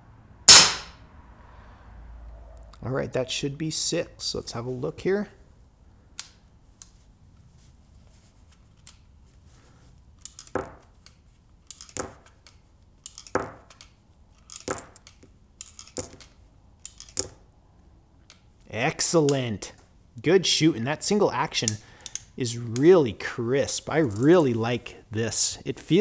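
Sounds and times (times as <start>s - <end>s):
shells dropping onto table: 10.2s - 10.9s, 11.7s - 12.4s, 13.1s - 17.4s
revolver cylinder metal clicks: 21.6s - 22.9s.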